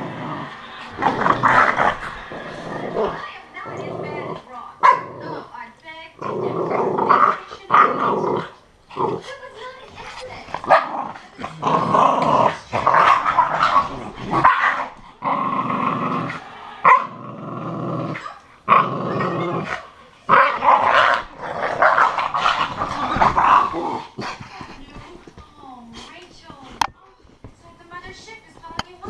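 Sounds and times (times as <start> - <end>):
dogs growling: 0.0 - 26.9
dog barking: 4.8 - 5.2, 10.7 - 11.0, 14.4 - 14.9, 16.8 - 17.1.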